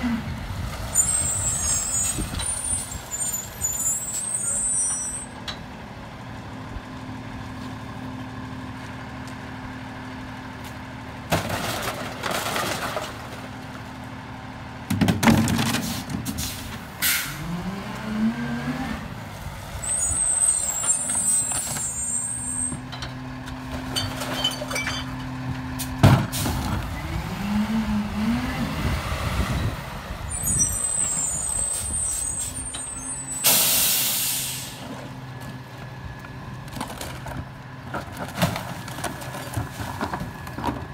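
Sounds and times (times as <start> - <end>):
diesel engine idling and revving: 0.0 - 40.9
high brake squeals: 1.0 - 5.4, 19.8 - 22.8, 30.3 - 34.8
air-brake hiss: 33.3 - 34.9.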